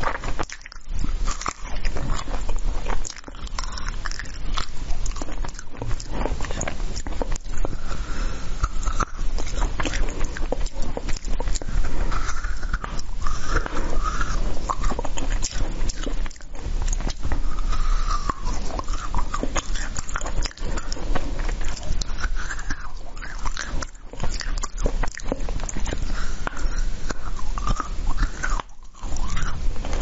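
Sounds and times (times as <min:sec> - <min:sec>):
frozen berries crunching when chewed: 0:00.0 - 0:30.0.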